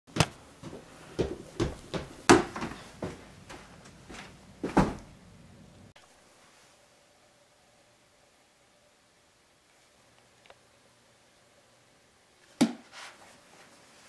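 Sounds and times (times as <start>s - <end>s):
footsteps on wooden stairs: 0.1s - 5.2s.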